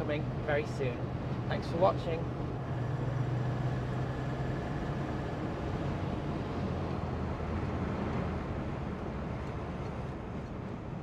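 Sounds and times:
road and wind noise: 0.0s - 11.0s.

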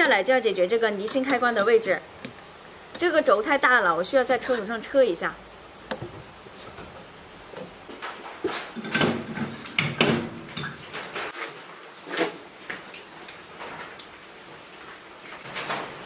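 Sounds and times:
metal knocks and clanks: 8.6s - 11.2s.

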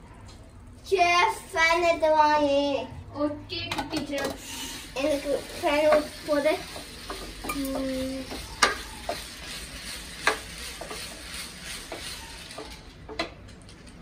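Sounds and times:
food sizzling in a pan: 4.4s - 12.6s
spatula scraping a pan: 4.5s - 12.7s.

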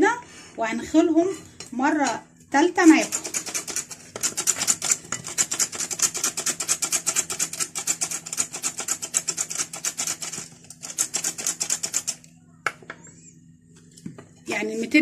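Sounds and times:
flour sifter rasping: 2.6s - 12.2s.

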